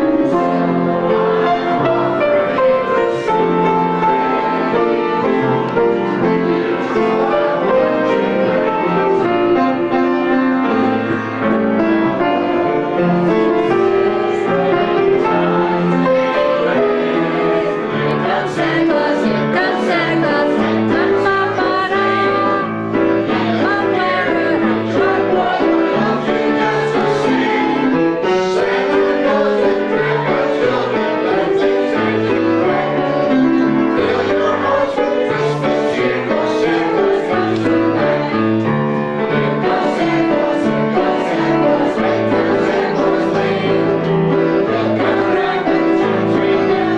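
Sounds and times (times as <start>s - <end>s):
group singing a christmas carol: 0.0s - 46.9s
pianos playing: 0.0s - 46.9s.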